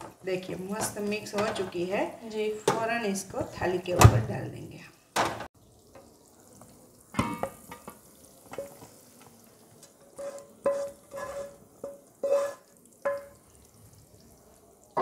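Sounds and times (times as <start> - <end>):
spoon clacking and scraping metal pan: 10.0 - 13.5.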